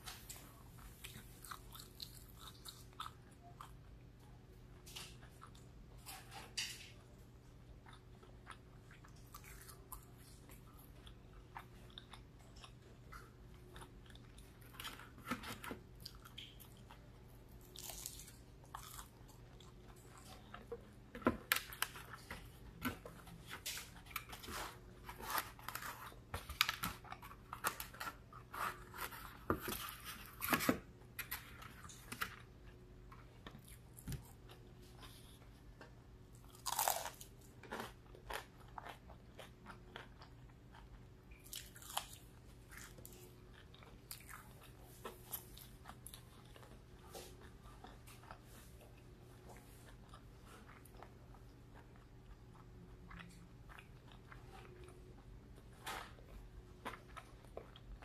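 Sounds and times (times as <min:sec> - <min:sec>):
chewing and crunching fried food: 0:00.0 - 0:58.0.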